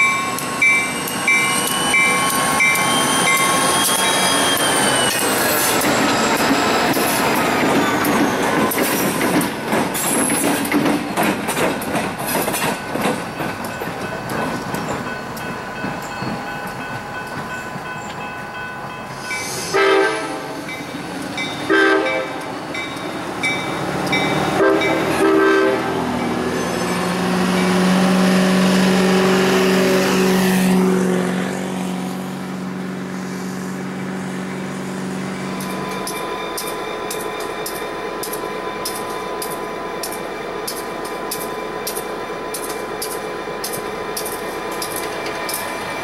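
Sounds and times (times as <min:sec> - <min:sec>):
train wheels clicking over rail joints: 0:00.0 - 0:18.4, 0:22.3 - 0:25.2, 0:35.5 - 0:46.0
locomotive horn blasts: 0:19.7 - 0:20.6, 0:21.7 - 0:22.5, 0:24.5 - 0:26.0.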